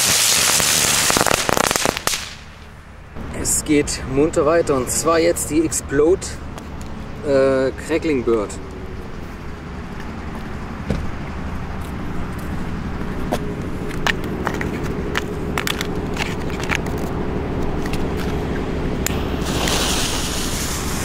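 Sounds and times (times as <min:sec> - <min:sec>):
sharp clicks and cracks: 0:13.9 - 0:18.4.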